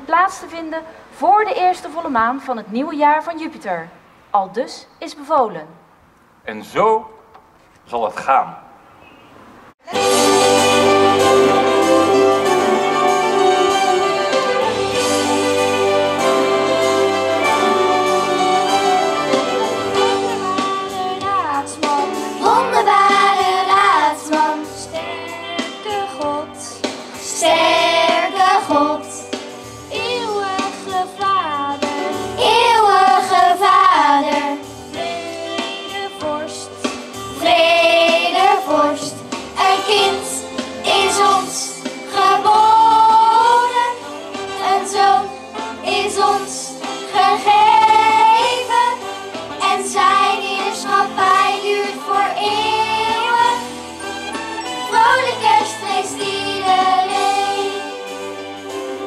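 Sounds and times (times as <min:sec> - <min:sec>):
children's choir singing: 0:09.9 - 0:29.4, 0:30.0 - 0:59.0.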